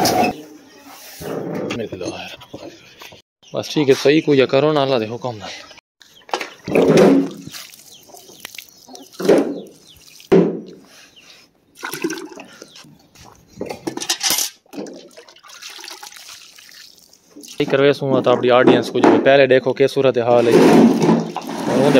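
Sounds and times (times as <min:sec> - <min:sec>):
water splashing in a bucket: 0:06.6 - 0:10.4, 0:11.8 - 0:12.5, 0:14.7 - 0:17.9, 0:20.8 - 0:21.9.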